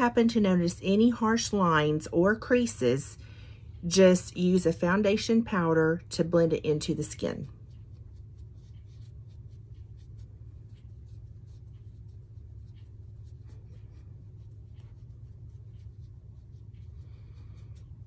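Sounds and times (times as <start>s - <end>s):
steady low hum: 0.0s - 18.0s
makeup brush sweeping on skin: 6.9s - 18.0s.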